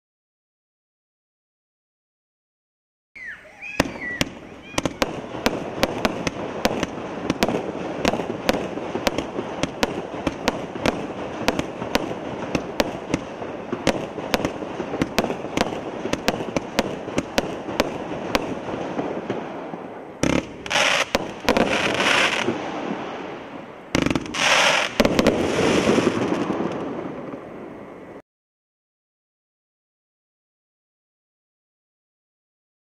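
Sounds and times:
crackle of bursting fireworks: 3.2s - 28.2s
fireworks shots: 3.6s - 28.2s.

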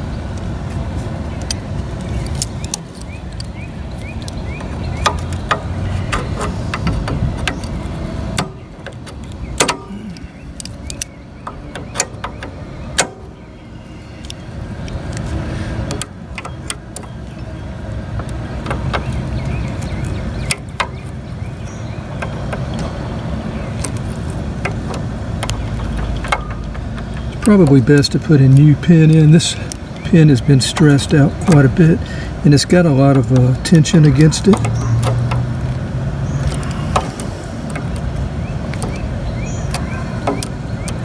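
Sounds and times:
steady low rumble: 0.0s - 41.0s
pliers clicking on metal: 1.4s - 13.3s.

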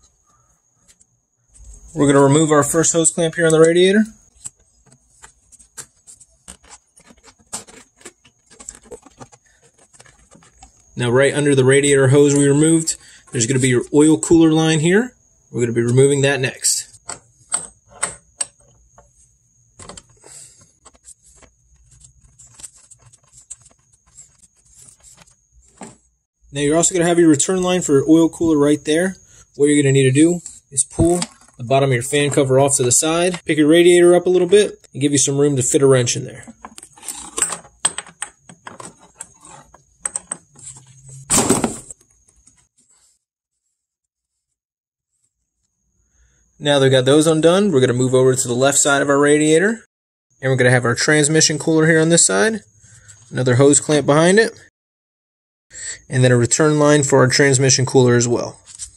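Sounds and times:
scraping clatter: 4.3s - 11.0s.

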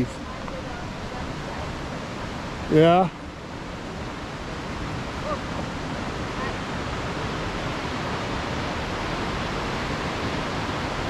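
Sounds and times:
creek and waterfall rushing: 0.0s - 11.0s.

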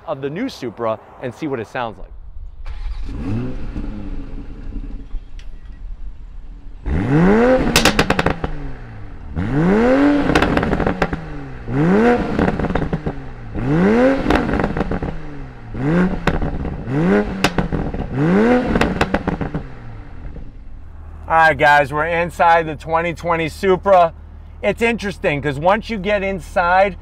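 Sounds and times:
exhaust crackles and pops: 2.0s - 21.7s
car engine idling and revving: 2.2s - 27.0s.

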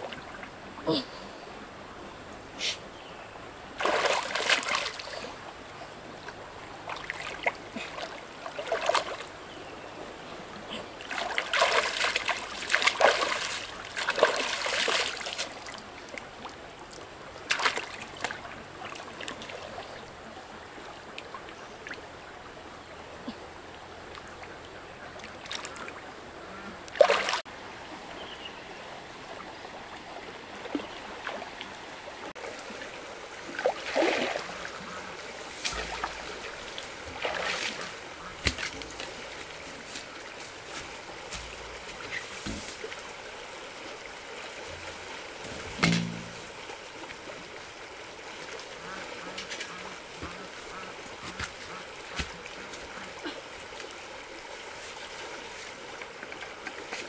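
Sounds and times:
water splashing: 3.8s - 5.6s, 6.2s - 9.3s, 10.7s - 16.6s, 17.4s - 20.0s, 26.9s - 27.5s, 30.5s - 54.4s.

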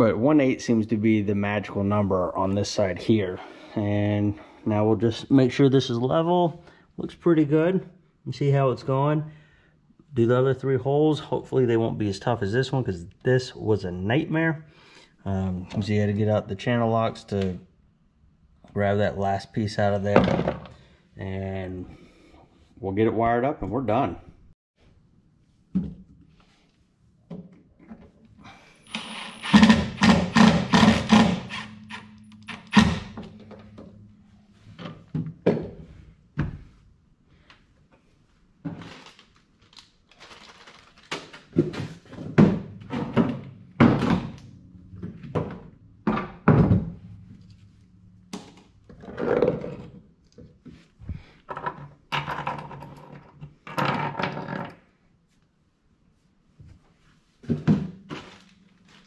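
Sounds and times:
impact driver running: 28.9s - 33.3s.

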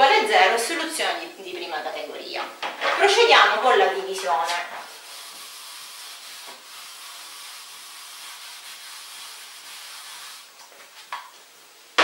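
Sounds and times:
eraser rubbing on whiteboard: 4.5s - 10.5s.

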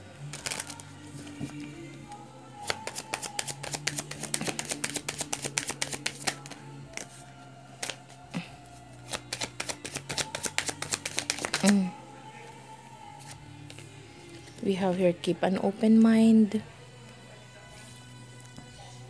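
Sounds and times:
cards being shuffled: 0.3s - 11.8s, 13.2s - 14.6s.

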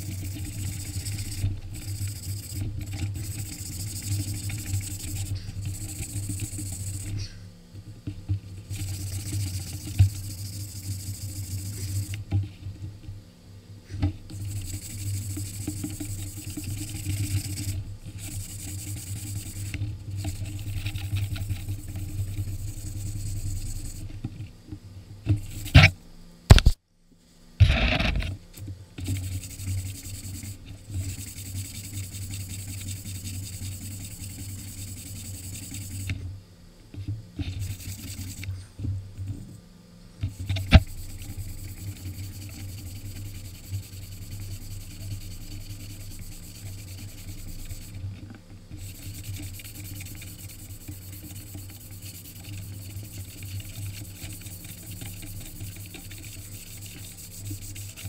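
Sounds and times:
sharp knock: 26.5s - 26.8s
sanding disc scrubbing steel blade: 40.4s - 48.0s, 48.8s - 58.0s.

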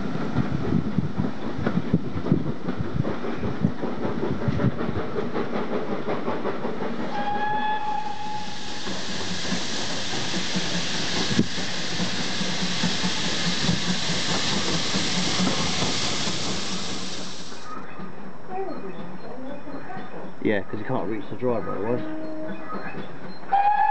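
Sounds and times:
train clattering over rails: 0.0s - 18.4s
steam hiss: 3.1s - 17.7s
steam whistle blast: 7.1s - 8.9s, 23.5s - 23.9s.

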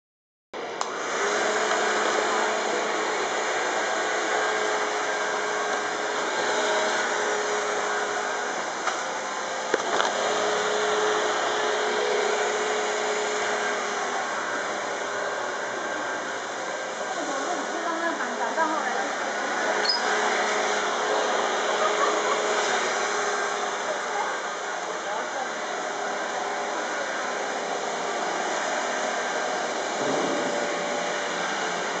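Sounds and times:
small electric motor spinning fan: 1.0s - 32.0s
small motors whirring: 17.2s - 25.5s.

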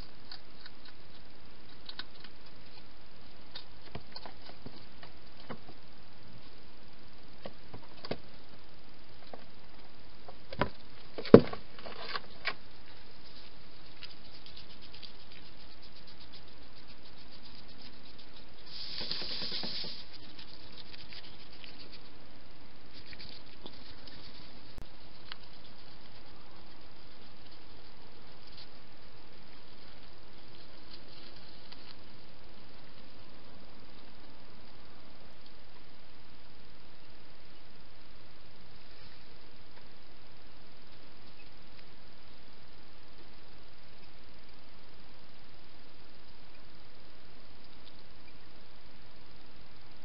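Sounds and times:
hedgehog feeding clicks and crunches: 0.0s - 5.7s, 10.5s - 22.2s, 22.9s - 33.2s, 47.6s - 48.4s
steady hiss: 0.0s - 50.0s.

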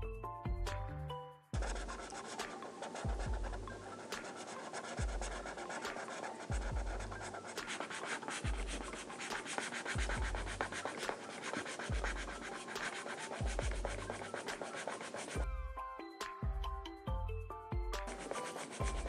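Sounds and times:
soft background music: 0.0s - 19.0s
marker scratching on paper: 1.6s - 15.4s, 18.0s - 19.0s.

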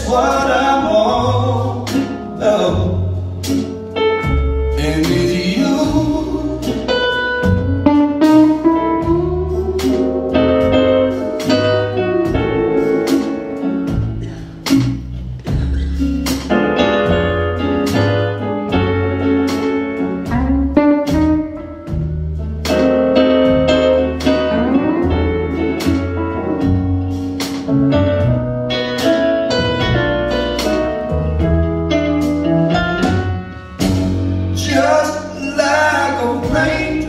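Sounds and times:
drums keeping a steady beat: 0.0s - 37.0s
electric bass: 0.0s - 37.0s
electric piano: 0.0s - 37.0s
electric guitar lines: 6.7s - 34.4s.

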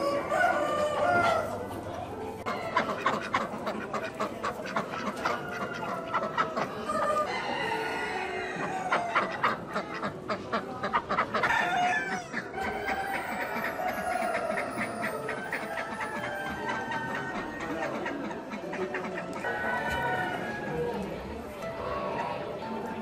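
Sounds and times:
roosters crowing: 0.0s - 1.6s, 5.1s - 9.4s, 11.4s - 18.2s, 19.4s - 21.2s
hens clucking: 0.0s - 23.0s.

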